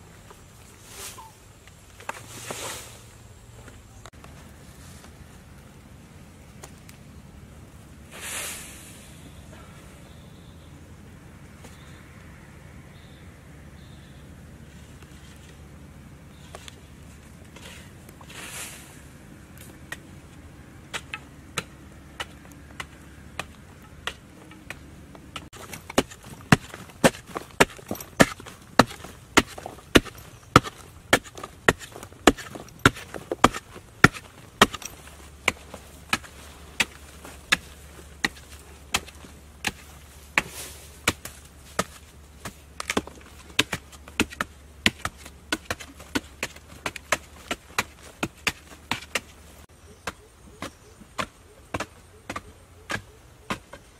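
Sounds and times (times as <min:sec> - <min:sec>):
digging tools chopping into earth: 0:20.8 - 0:53.9.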